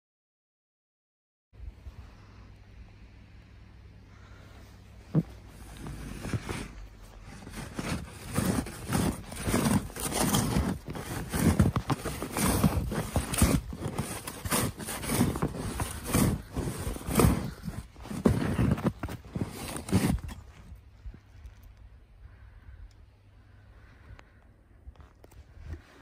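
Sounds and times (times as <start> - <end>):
shovel crunching and scraping snow: 5.1 - 20.8.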